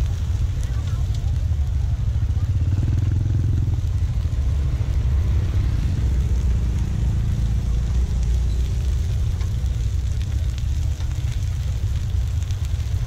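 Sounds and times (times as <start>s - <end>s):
steady low rumble: 0.0s - 13.0s
motorcycle passing: 1.3s - 10.5s.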